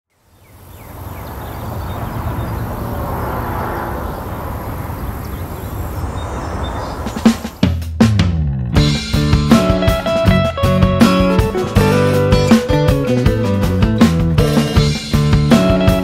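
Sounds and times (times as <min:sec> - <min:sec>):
vehicles rumbling over bridge: 0:00.2 - 0:07.6.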